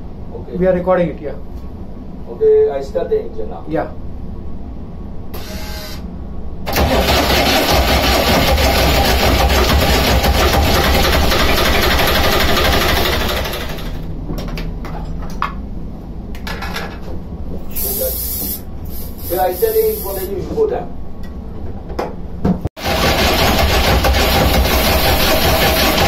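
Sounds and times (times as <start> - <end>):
starter motor cranking diesel engine: 6.7 - 14.0, 22.8 - 26.0.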